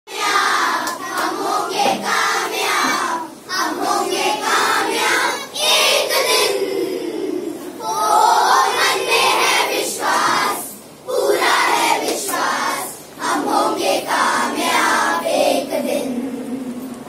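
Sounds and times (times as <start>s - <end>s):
children singing together: 0.1s - 16.8s.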